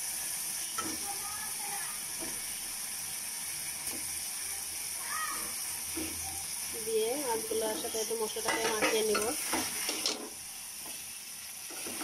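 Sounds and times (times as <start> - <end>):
spice paste sizzling in a pan: 0.0 - 12.0
spatula knocking and scraping pan: 7.6 - 11.0, 11.7 - 12.0.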